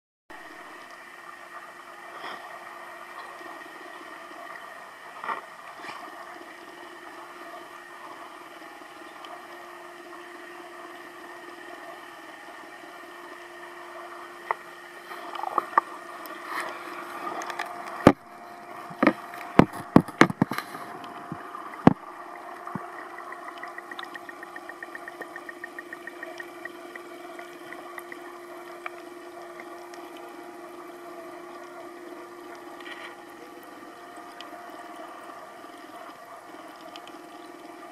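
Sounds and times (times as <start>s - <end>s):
aquarium pumps humming: 0.3s - 37.9s
rapid even ticking: 22.6s - 28.3s.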